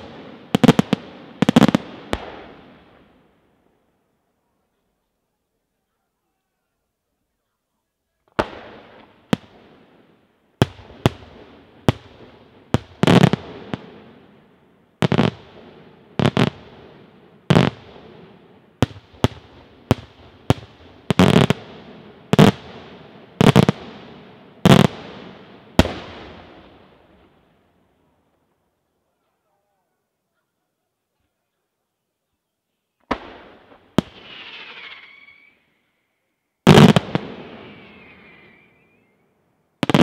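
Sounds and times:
fireworks bangs: 0:00.0 - 0:03.1, 0:08.3 - 0:10.0, 0:10.6 - 0:14.3, 0:15.0 - 0:27.3, 0:33.0 - 0:35.7, 0:36.6 - 0:39.2.

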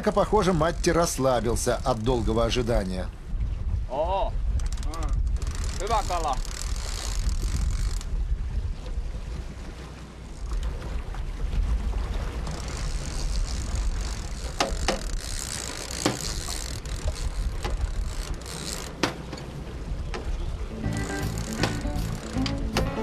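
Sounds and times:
wind rumbling on microphone: 0:00.0 - 0:23.0
fishing reel drag ratcheting: 0:04.6 - 0:08.1, 0:12.5 - 0:19.0, 0:20.9 - 0:22.6.

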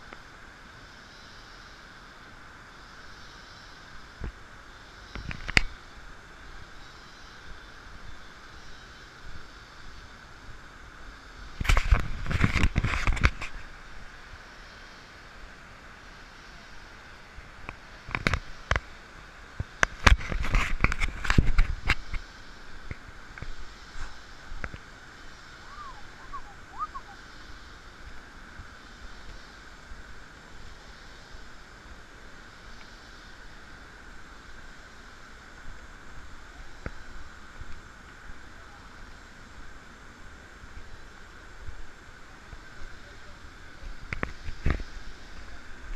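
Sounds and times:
rainforest background hiss: 0:00.0 - 0:45.9
faint short chirps: 0:25.6 - 0:27.2.

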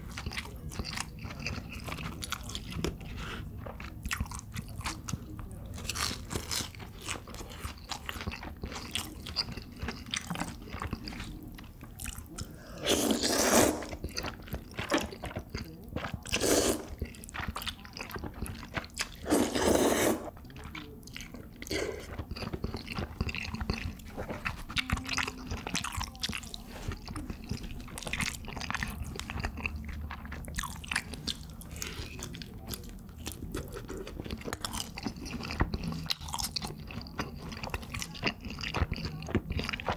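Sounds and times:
crunchy food being chewed: 0:00.0 - 0:39.9
slurping noodles: 0:12.4 - 0:14.1, 0:16.2 - 0:17.0, 0:19.0 - 0:20.4.

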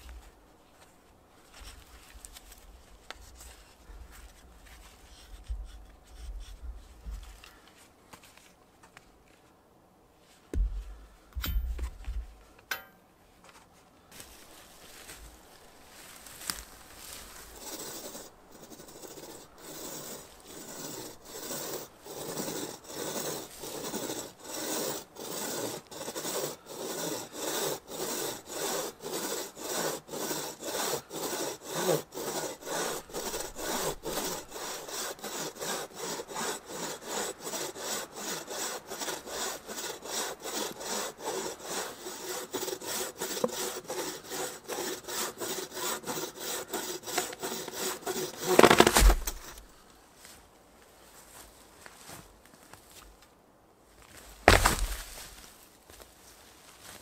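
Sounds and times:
hand saw cutting log: 0:17.5 - 0:49.6, 0:54.5 - 0:55.2.

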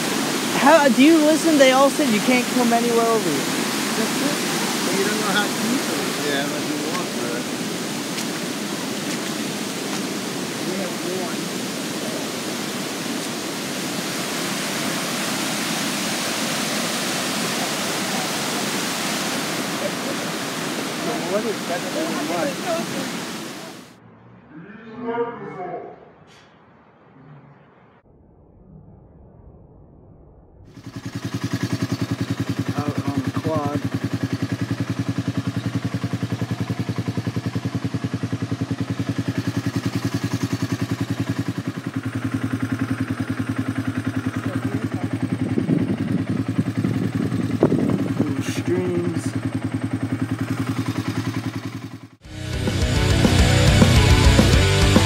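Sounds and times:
stream rushing over rocks: 0:00.0 - 0:23.9
quad engine running: 0:00.0 - 0:24.0, 0:30.7 - 0:55.0.

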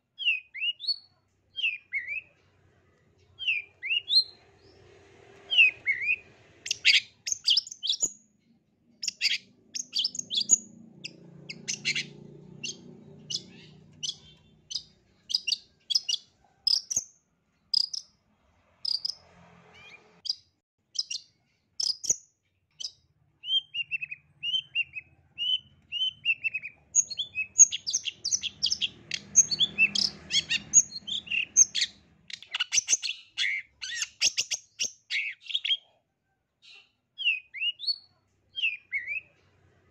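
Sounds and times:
shrike singing: 0:09.0 - 0:16.9.

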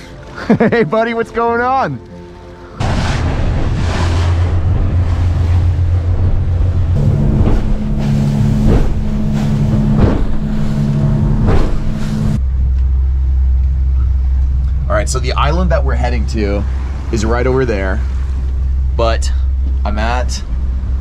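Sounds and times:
water slapping against hull: 0:02.8 - 0:12.4
motorboat engine running: 0:02.8 - 0:21.0.

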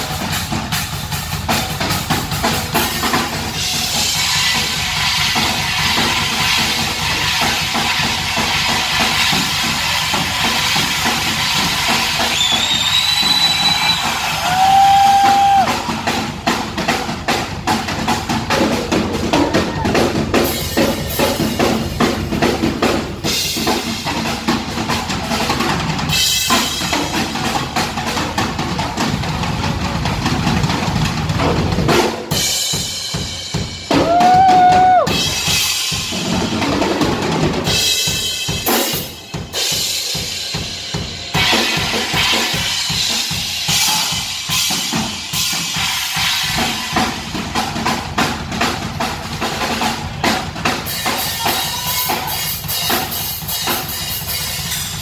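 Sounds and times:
cymbals: 0:00.0 - 0:29.6, 0:30.5 - 0:48.7
drum solo: 0:00.0 - 0:55.0.

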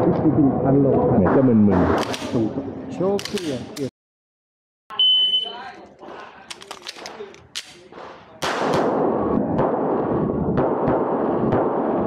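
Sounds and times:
magazine clicking into pistol: 0:03.2 - 0:03.9, 0:06.5 - 0:07.8.

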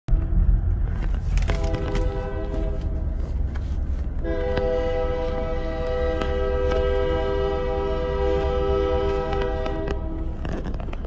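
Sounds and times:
low rumble inside car: 0:00.1 - 0:11.0
locomotive air horn blasts: 0:01.4 - 0:03.5, 0:04.2 - 0:10.4.

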